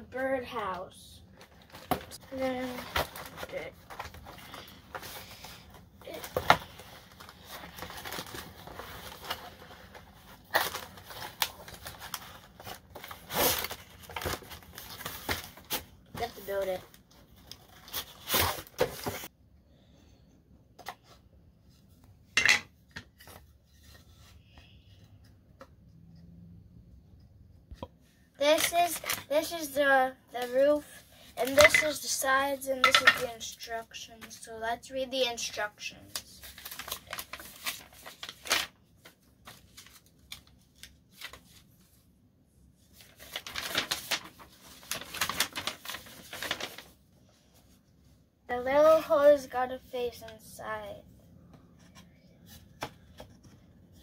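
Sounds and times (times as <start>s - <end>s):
paper rustling and crinkling: 0.2s - 19.3s, 28.4s - 34.5s, 35.4s - 42.0s, 42.8s - 47.8s.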